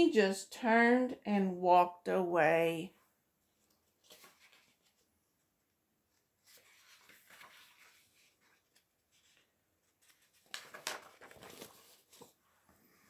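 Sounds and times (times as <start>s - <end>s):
paper pages rustling: 3.5s - 5.4s, 6.1s - 12.4s.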